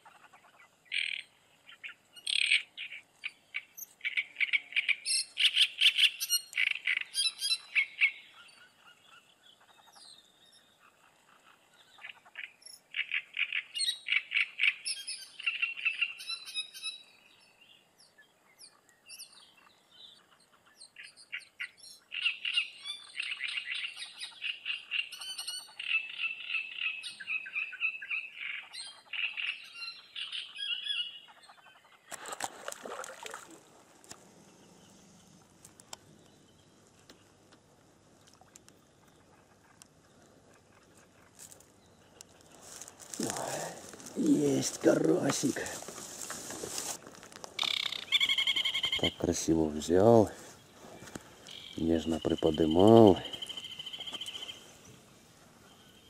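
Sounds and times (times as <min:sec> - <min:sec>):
chattering animal calls: 0:47.6 - 0:50.3.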